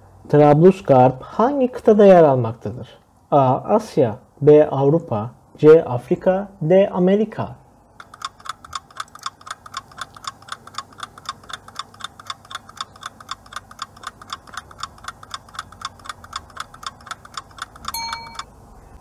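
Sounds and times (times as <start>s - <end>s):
clock ticking fast: 8.0s - 18.5s.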